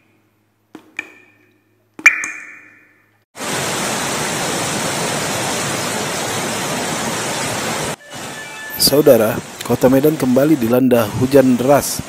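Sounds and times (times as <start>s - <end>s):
heavy rain pouring: 3.4s - 12.0s.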